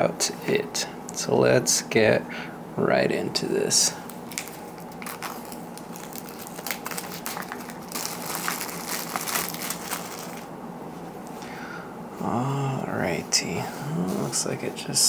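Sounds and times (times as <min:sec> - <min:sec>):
plastic wrapper crinkling: 0:04.1 - 0:10.5.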